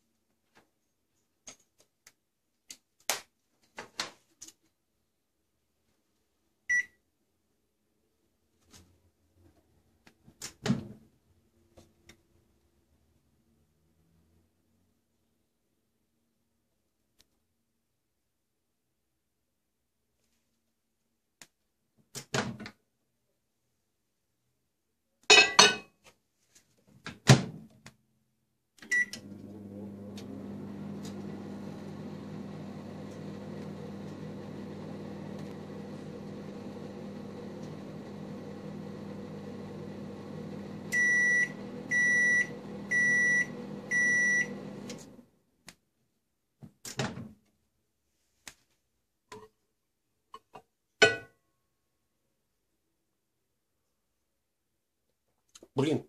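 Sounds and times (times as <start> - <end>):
microwave beeps: 6.7 - 7.0, 28.9 - 31.7, 32.7 - 45.0
microwave oven humming: 28.9 - 45.2.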